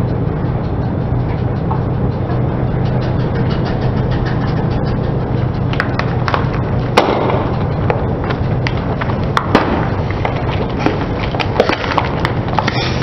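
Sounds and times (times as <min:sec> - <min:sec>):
low engine hum: 0:00.0 - 0:13.0
plastic toys cracking under tyre: 0:09.4 - 0:13.0.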